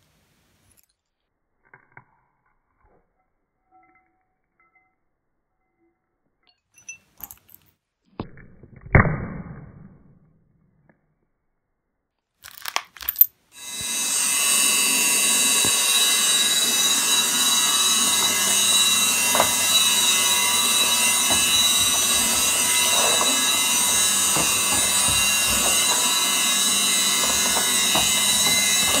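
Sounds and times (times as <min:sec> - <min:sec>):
vacuum cleaner whining: 0:13.6 - 0:29.0.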